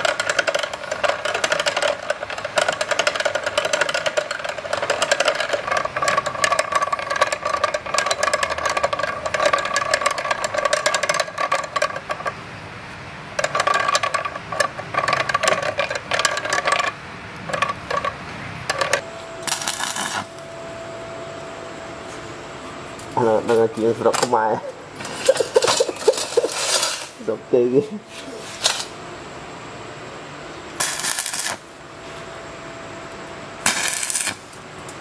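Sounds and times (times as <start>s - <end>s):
gear pins rattling: 0.0s - 12.4s, 13.4s - 20.2s, 25.0s - 27.2s.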